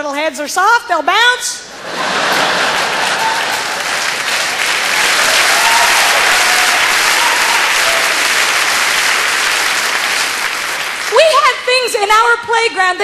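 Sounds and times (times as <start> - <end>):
audience applauding: 1.9 - 11.9.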